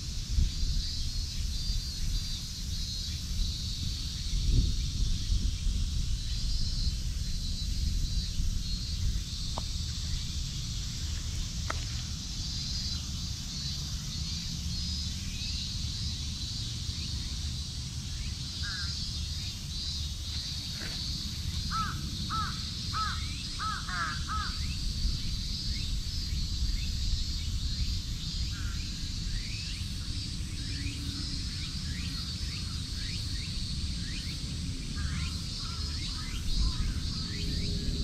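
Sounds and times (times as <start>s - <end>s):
steady high buzz: 0.0s - 38.0s
crow cawing: 21.7s - 24.6s.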